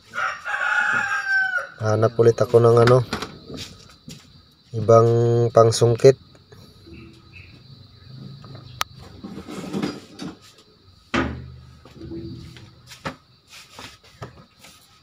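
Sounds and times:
knocks: 11.1 - 13.2.

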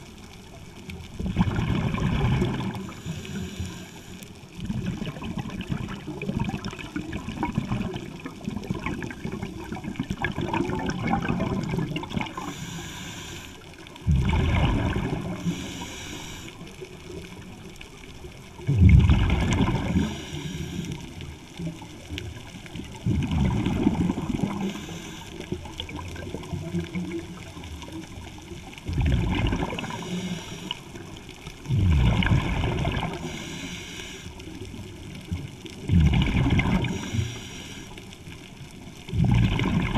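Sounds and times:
exhaled bubbles underwater: 0.0 - 39.9
regulator hiss on inhale: 2.7 - 4.6, 12.2 - 14.0, 15.2 - 17.2, 19.8 - 21.4, 24.1 - 25.8, 29.7 - 31.8, 33.0 - 34.7, 36.7 - 38.4.

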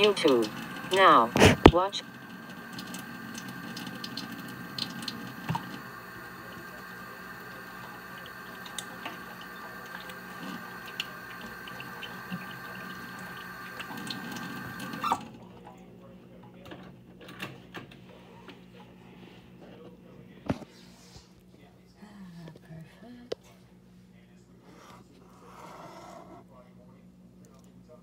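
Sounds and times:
kitchen tap running: 0.0 - 15.5
faint hum: 0.0 - 28.0
tap shutting off click: 2.8 - 5.8.

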